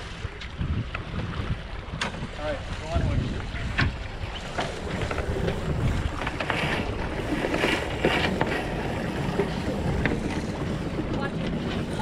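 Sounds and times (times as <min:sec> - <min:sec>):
water splashing along hull: 0:00.0 - 0:12.0
wind buffeting microphone: 0:00.0 - 0:12.0.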